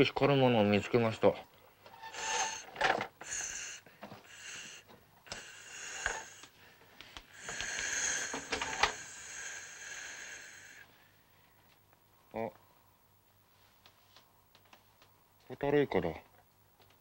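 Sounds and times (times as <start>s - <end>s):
person hissing rasping breaths: 2.0s - 11.0s.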